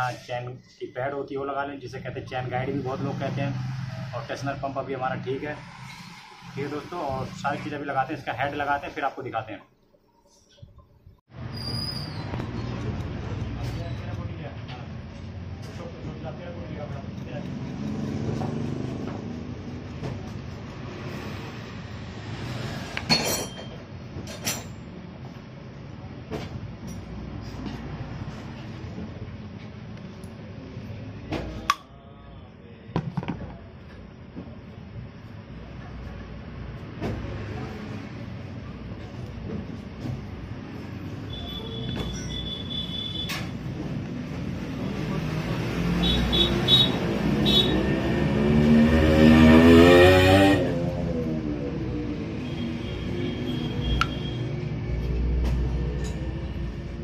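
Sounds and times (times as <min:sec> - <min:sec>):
motor engine revving: 0:17.4 - 0:19.8, 0:44.6 - 0:52.2
metal parts and tools clinking: 0:23.1 - 0:24.8.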